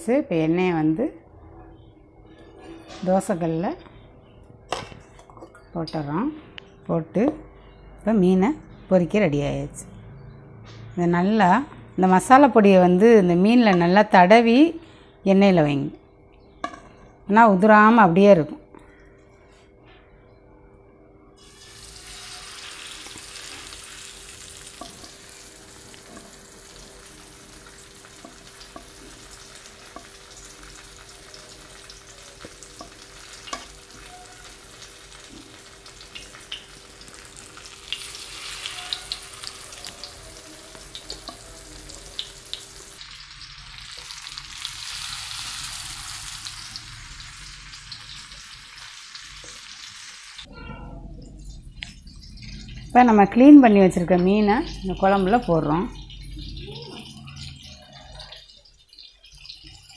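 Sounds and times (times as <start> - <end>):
fish sizzling in oil: 21.4 - 50.5, 54.6 - 59.9.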